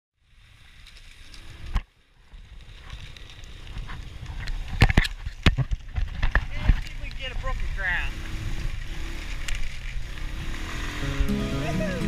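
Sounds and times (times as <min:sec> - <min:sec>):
wind rumbling on microphone: 0:00.2 - 0:11.3
knocks and rattles from bumpy ride: 0:03.8 - 0:11.3.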